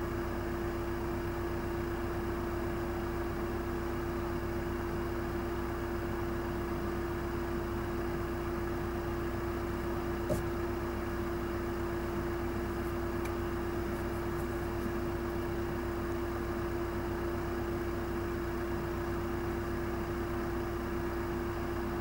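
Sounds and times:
steady mid-low hum: 7.8s - 22.0s
short click: 10.3s - 10.5s.

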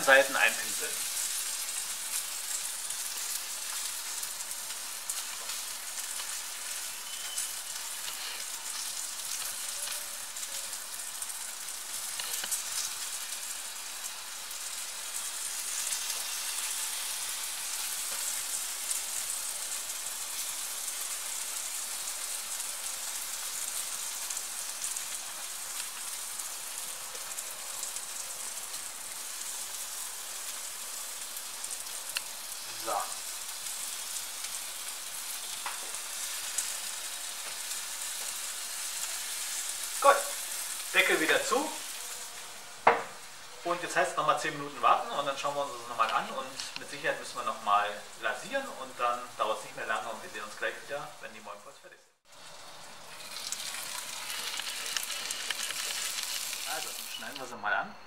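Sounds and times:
meatballs sizzling on a grill: 0.0s - 57.6s.

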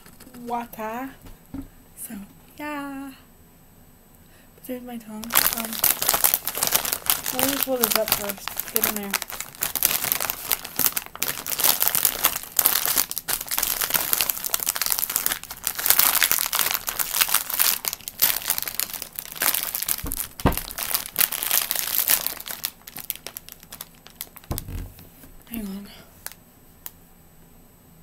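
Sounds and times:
soft thumps: 1.2s - 1.8s, 20.0s - 20.8s, 24.5s - 25.4s
plastic packaging crinkling: 5.2s - 26.4s.

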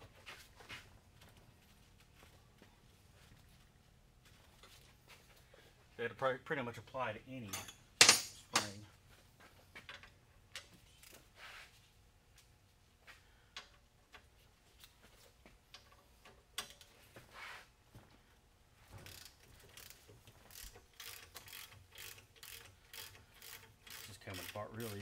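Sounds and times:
ratchet wrench clicking: 19.0s - 25.0s.

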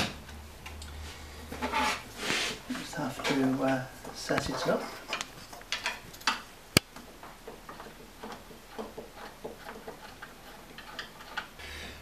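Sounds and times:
wooden rest clicking on lathe bed: 5.2s - 11.6s.

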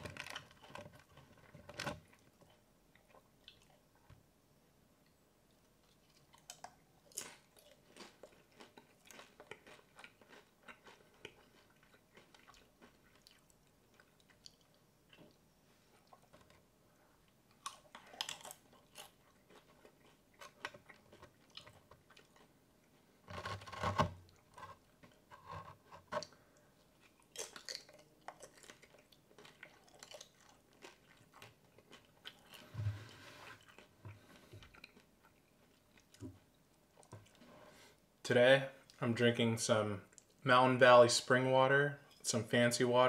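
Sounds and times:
person crunching chips: 6.4s - 14.7s, 17.6s - 22.5s, 27.0s - 32.7s.

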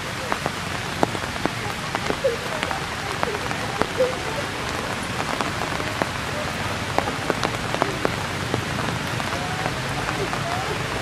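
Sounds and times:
rain falling on leaves: 0.0s - 11.0s
sharp water drips: 0.0s - 11.0s.

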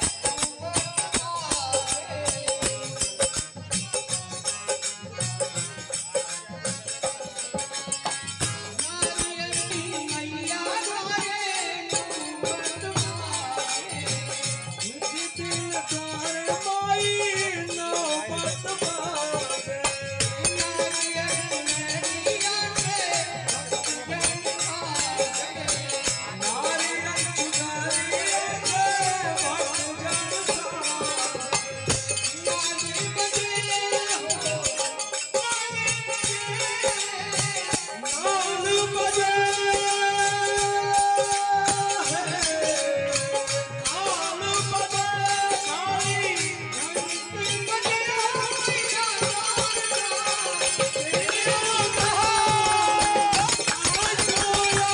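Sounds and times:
dholak drum: 0.0s - 54.9s
harmonium: 0.0s - 54.9s
jangling hand percussion: 0.0s - 54.9s
person singing: 8.7s - 54.9s.

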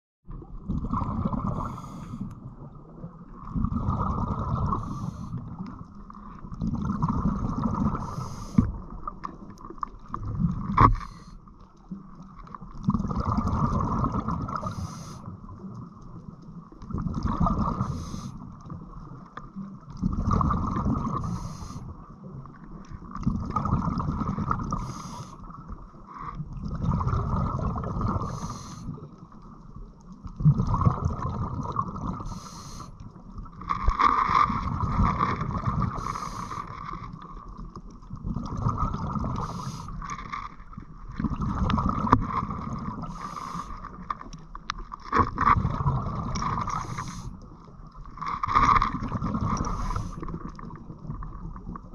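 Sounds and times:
exhaled bubbles gurgling: 0.3s - 51.9s
regulator inhale hiss: 1.6s - 2.3s, 4.7s - 5.4s, 8.0s - 8.7s, 10.9s - 11.4s, 14.6s - 15.3s, 17.8s - 18.4s, 21.1s - 21.9s, 24.7s - 25.5s, 28.2s - 29.0s, 32.2s - 33.0s, 35.9s - 36.8s, 39.4s - 40.0s, 43.0s - 44.0s, 46.7s - 47.4s, 49.6s - 50.3s.

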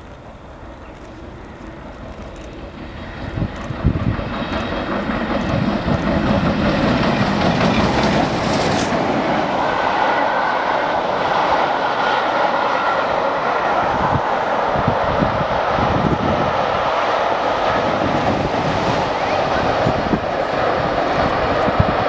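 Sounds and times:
coaches clattering on rails: 0.0s - 9.6s
steam locomotive passing: 0.0s - 22.0s.

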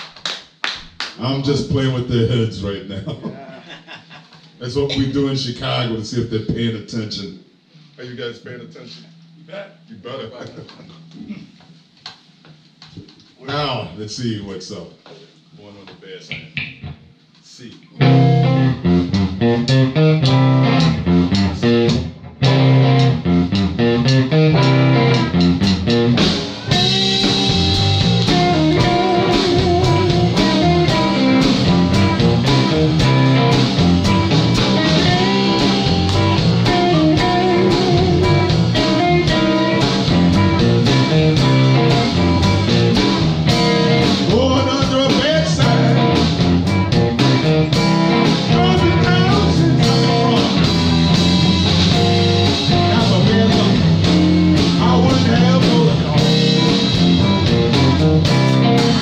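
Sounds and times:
electric blues band playing: 18.0s - 59.0s
wavering lead guitar notes: 18.0s - 59.0s.

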